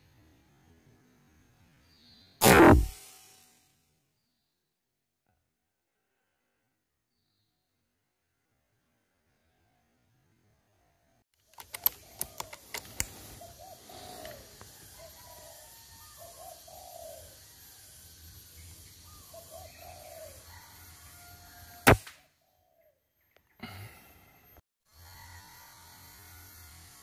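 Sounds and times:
air rifle shot: 0:02.4 - 0:03.4, 0:21.9 - 0:22.2
sharp clicks: 0:11.5 - 0:13.3.

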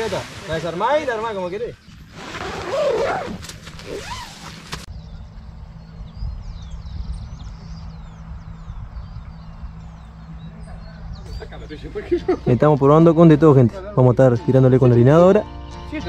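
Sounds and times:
birds chirping: 0:00.0 - 0:16.0
steady low rumble: 0:04.9 - 0:12.5.

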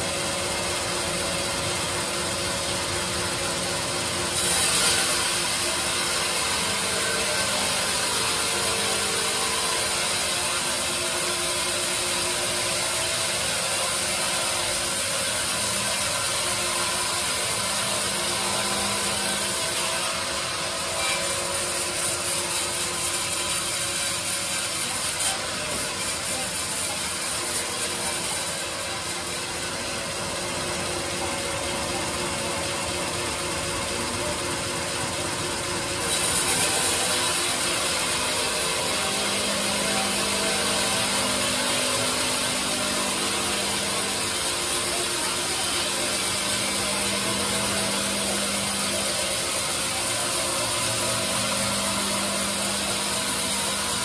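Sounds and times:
bandsaw cutting a log: 0:00.0 - 0:54.0.

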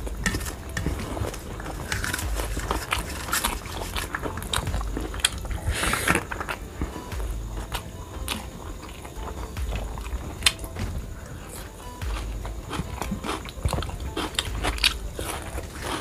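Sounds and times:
chewing: 0:00.0 - 0:16.0.

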